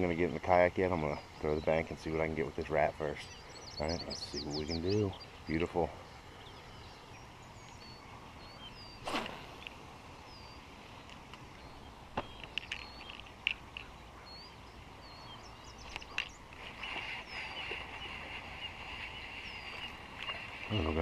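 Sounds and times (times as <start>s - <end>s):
small birds chirping: 0.0s - 21.0s
fishing rod cast swish: 9.0s - 9.8s.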